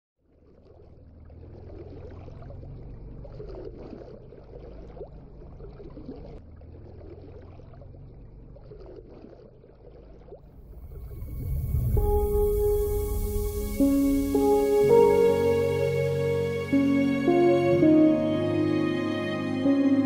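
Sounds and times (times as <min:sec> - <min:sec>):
water sloshing and splashing: 0:00.2 - 0:18.2
steady low rumble: 0:10.4 - 0:18.9.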